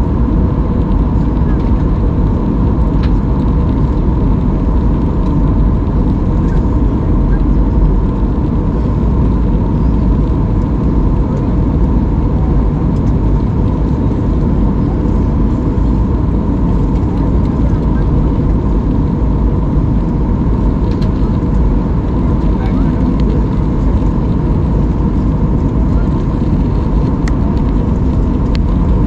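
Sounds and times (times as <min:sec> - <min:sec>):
jet engines and airflow rumble: 0:00.0 - 0:29.0.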